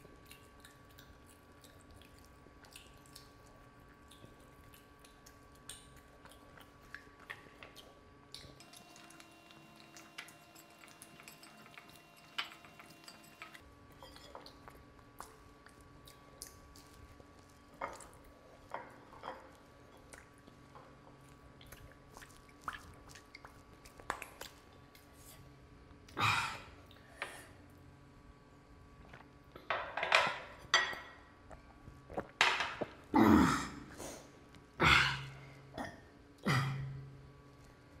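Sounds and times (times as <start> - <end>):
lip smacks and slurps: 21.6 - 25.1.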